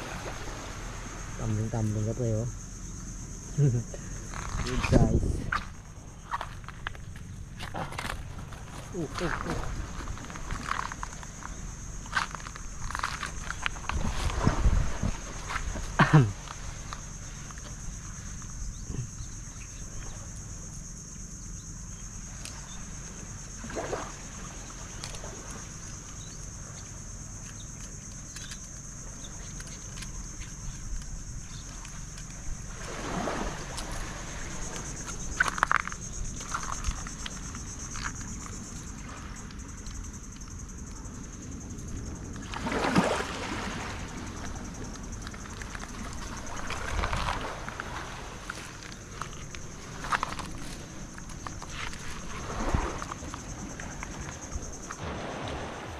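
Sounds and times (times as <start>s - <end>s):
water splashing and gurgling: 0.0s - 1.8s, 3.8s - 19.1s, 22.3s - 25.8s, 30.8s - 40.1s, 41.9s - 55.9s.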